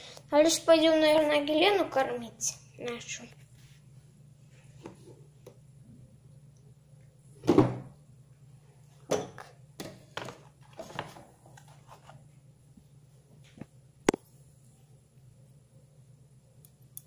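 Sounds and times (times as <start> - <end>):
plastic boxes being handled: 9.8 - 12.2.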